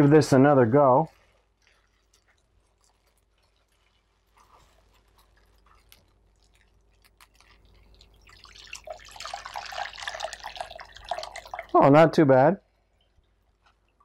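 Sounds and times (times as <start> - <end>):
liquid dripping: 0.0 - 14.0
liquid splashing into a bowl: 1.1 - 11.8.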